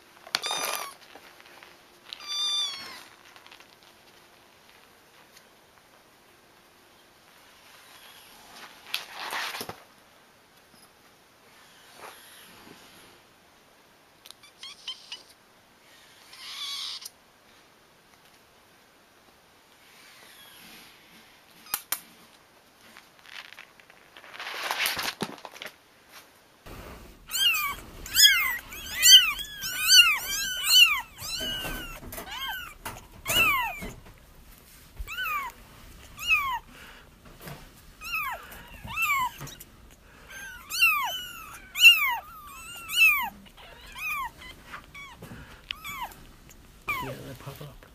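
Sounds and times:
soft rustling: 0.0 - 6.2, 20.6 - 47.9
kittens meowing: 2.1 - 3.2, 16.3 - 17.1, 27.1 - 34.4, 35.0 - 37.2, 38.0 - 47.8.

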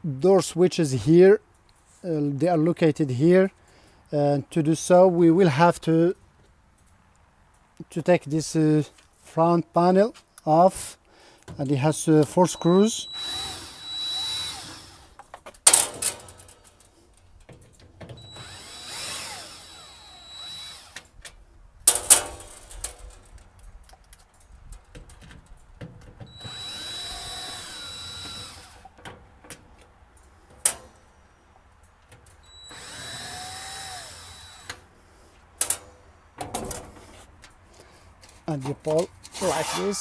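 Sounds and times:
cordless drill backing out screws: 11.5 - 16.8, 17.5 - 21.1, 26.1 - 29.7, 32.2 - 34.8.

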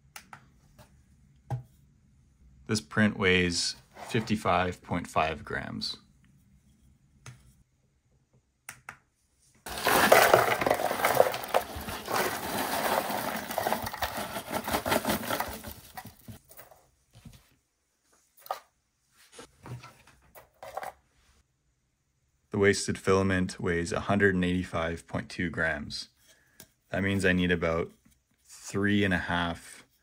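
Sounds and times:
plastic pieces rattling into box: 9.7 - 16.4.

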